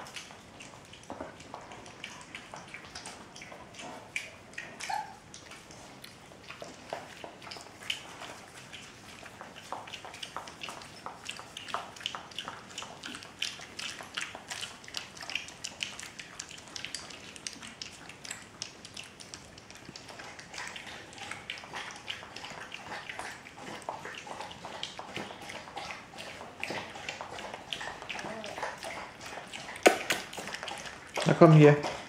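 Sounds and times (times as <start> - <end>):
puppies lapping food: 0.0 - 32.0.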